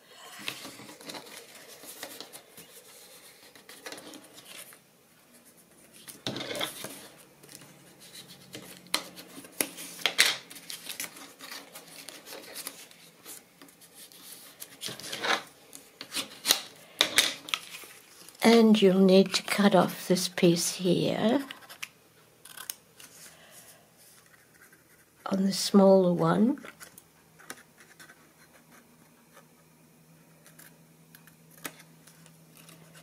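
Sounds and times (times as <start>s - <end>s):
paper rustling and scraping: 0.2s - 19.5s.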